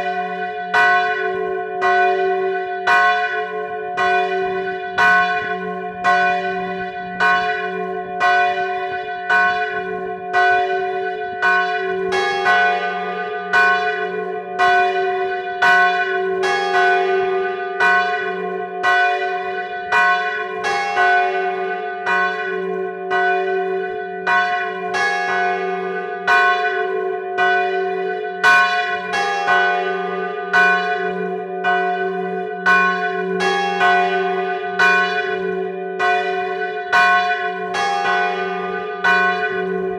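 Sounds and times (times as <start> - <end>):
large church bell tolling: 0.0 - 39.9
smaller bells struck alternately: 0.0 - 39.9.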